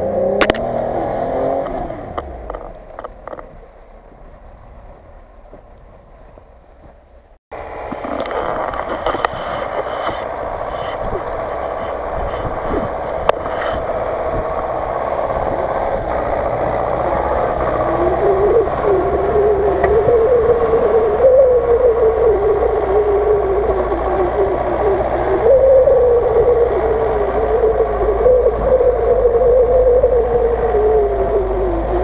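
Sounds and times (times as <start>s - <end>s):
truck engine running: 0.0s - 32.0s
wavering whine: 7.6s - 32.0s.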